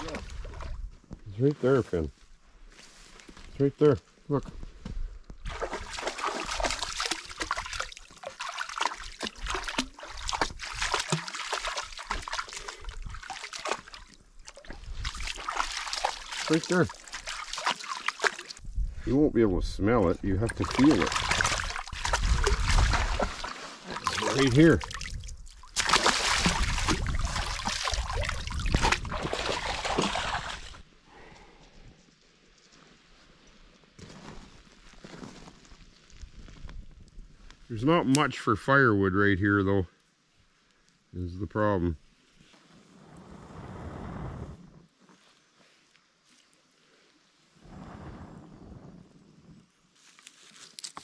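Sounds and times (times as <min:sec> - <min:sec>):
water splashing and trickling: 0:05.4 - 0:19.0, 0:20.2 - 0:30.9.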